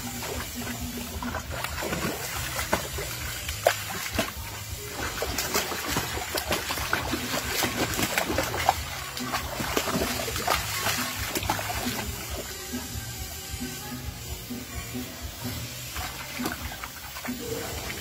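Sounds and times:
dog splashing in water: 0.0s - 12.6s
background music: 0.0s - 18.0s.

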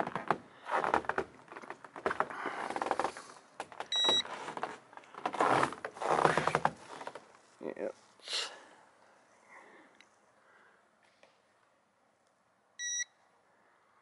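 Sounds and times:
short electronic beep: 12.8s - 13.1s.

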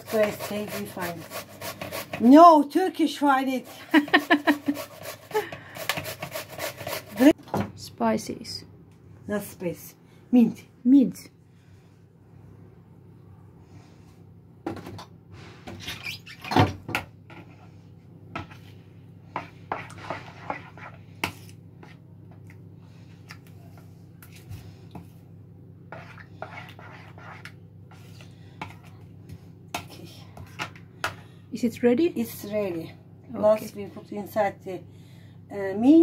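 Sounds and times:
spoon scraping plastic bowl: 0.0s - 2.3s, 25.9s - 29.0s.

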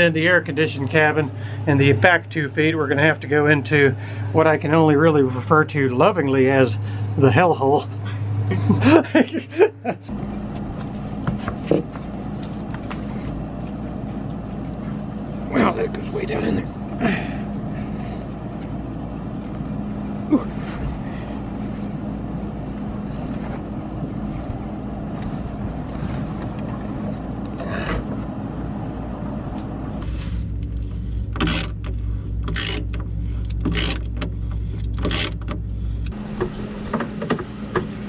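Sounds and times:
steady low hum: 0.0s - 38.0s
hand tools clicking on bolts: 31.4s - 35.6s.

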